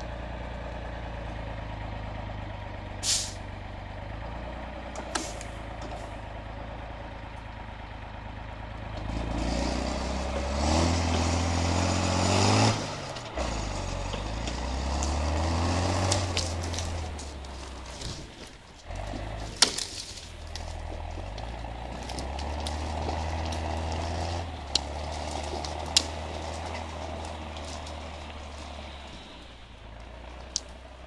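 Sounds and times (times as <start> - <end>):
diesel engine running and labouring: 0.0 - 31.0
short hiss: 3.0 - 3.4.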